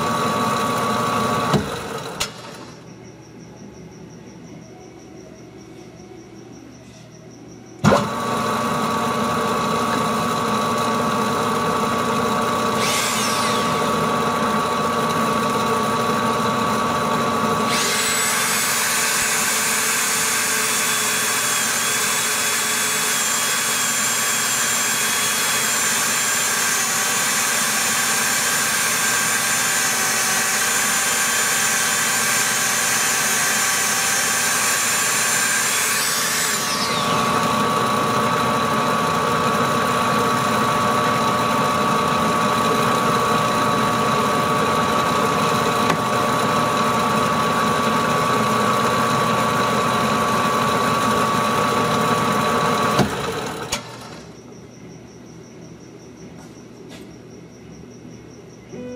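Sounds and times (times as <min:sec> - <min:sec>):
metal lathe running: 0:00.0 - 0:02.7, 0:07.8 - 0:54.3
rotary tool grinding metal: 0:12.6 - 0:15.2, 0:17.5 - 0:38.0.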